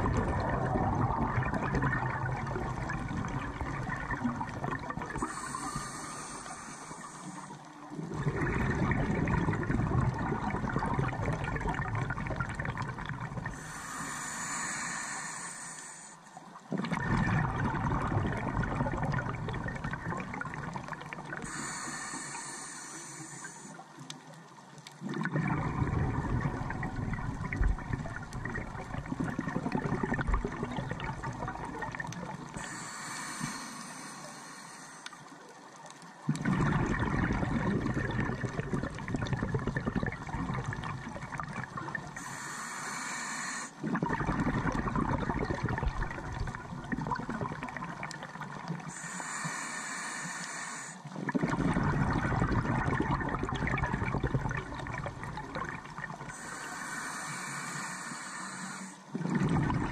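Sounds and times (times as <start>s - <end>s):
underwater exhale bubbling: 0.0s - 59.9s
regulator inhale hiss: 5.2s - 7.8s, 13.5s - 16.4s, 21.4s - 23.8s, 32.5s - 35.4s, 42.2s - 43.9s, 48.8s - 51.2s, 56.3s - 59.2s.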